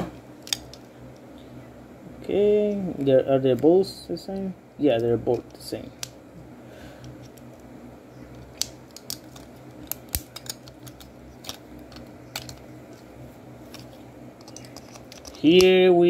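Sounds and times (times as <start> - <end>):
plastic figure parts clicking: 8.3 - 12.7, 13.7 - 15.7.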